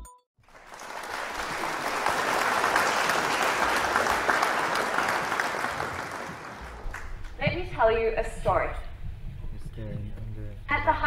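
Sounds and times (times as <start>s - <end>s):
audience applauding: 0.4s - 7.4s.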